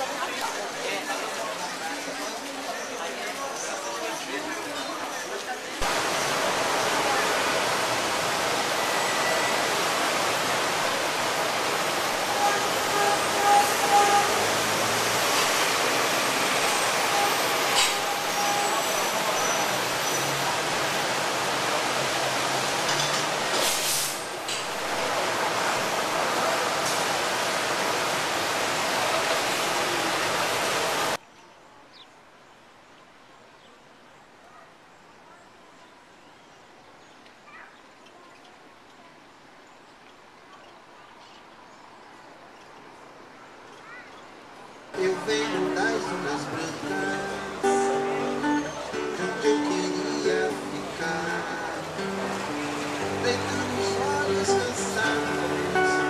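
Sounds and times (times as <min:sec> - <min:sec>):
rain on pavement: 0:05.8 - 0:13.5, 0:18.6 - 0:31.2.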